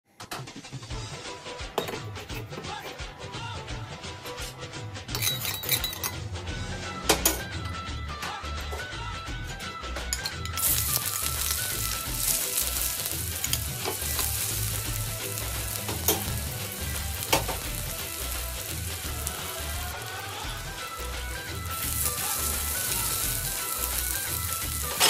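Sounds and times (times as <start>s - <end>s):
background music: 0.1s - 25.0s
onion sizzling in hot oil: 10.6s - 25.0s.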